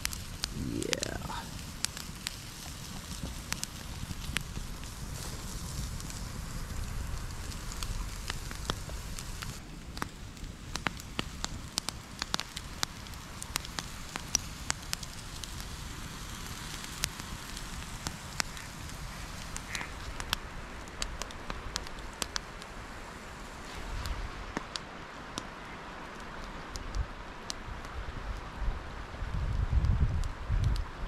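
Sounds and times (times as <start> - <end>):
steak sizzling: 0.0 - 9.6, 11.2 - 20.4
campfire crackling: 0.0 - 31.0.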